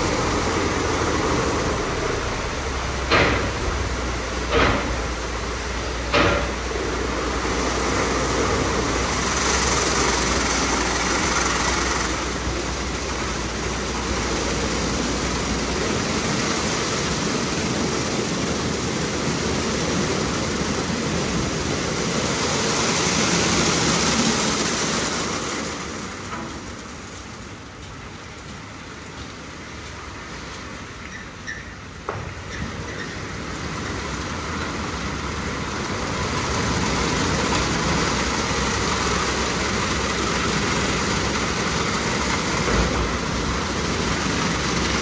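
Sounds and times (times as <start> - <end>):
car wash brushes with water spraying: 0.0 - 45.0
sharp knocks: 3.0 - 3.8, 4.5 - 5.2, 6.1 - 6.6.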